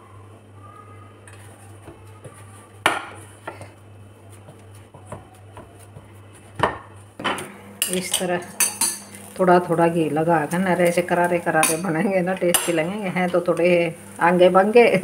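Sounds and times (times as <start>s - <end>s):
hands kneading dough: 1.2s - 7.2s.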